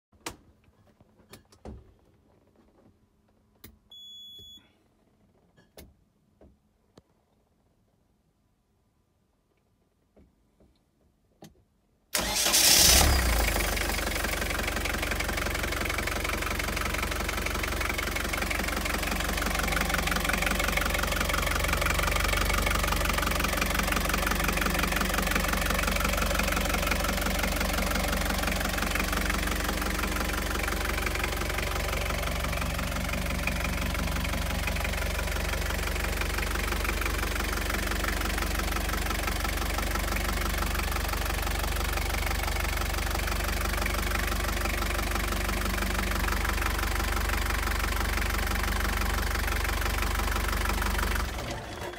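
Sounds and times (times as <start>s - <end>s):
diesel engine starting and idling: 12.1s - 51.9s.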